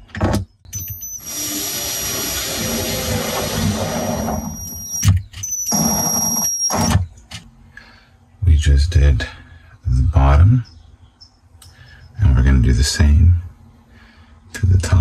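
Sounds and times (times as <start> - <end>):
cordless drill motor whining: 0.7 - 7.0.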